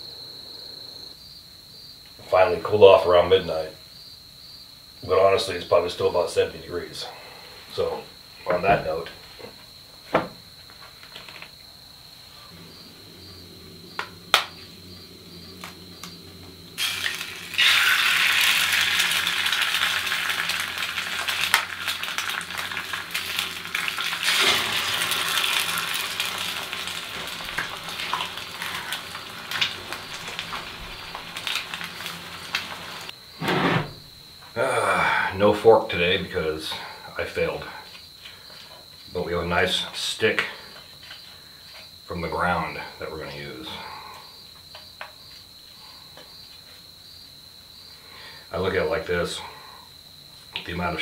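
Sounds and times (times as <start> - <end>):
low hum: 12.3 - 18.1
egg sizzling in skillet: 15.6 - 33.2.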